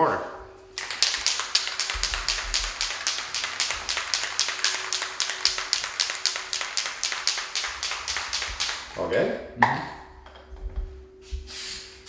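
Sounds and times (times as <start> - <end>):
aerosol can ball rattling: 0.8 - 9.0.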